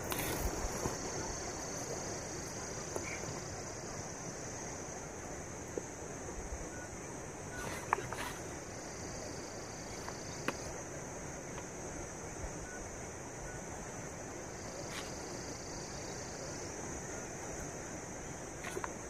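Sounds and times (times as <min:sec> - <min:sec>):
insects chirring: 0:00.0 - 0:19.0.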